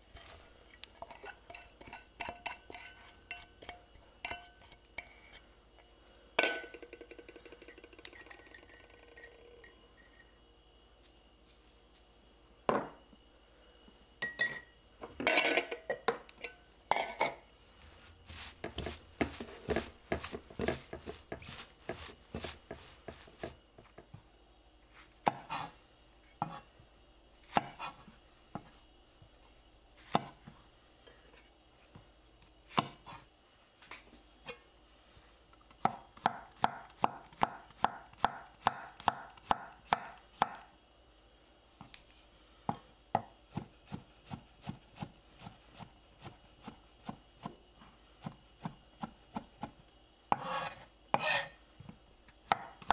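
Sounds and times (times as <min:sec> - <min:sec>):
spoon clinking in glass bowl: 0:06.4 - 0:10.3, 0:14.2 - 0:14.7
knife slicing on board: 0:18.3 - 0:23.6, 0:50.3 - 0:51.6.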